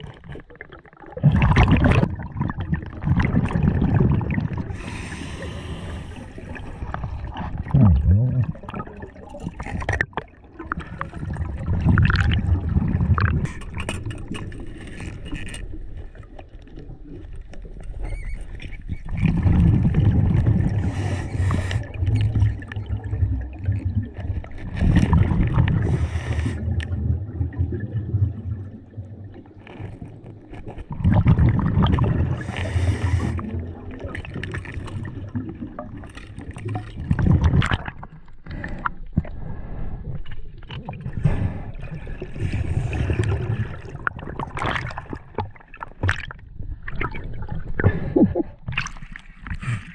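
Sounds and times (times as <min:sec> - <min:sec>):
exhaled bubbles gurgling: 0:00.0 - 0:49.9
regulator inhale hiss: 0:04.7 - 0:06.6, 0:20.8 - 0:21.9, 0:25.8 - 0:26.6, 0:32.4 - 0:33.4.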